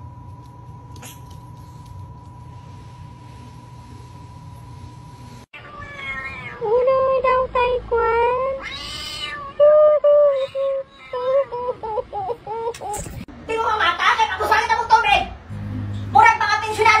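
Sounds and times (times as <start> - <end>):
low hum: 0.0 - 5.5, 15.3 - 17.0
cat meowing: 5.6 - 6.6, 8.6 - 9.6.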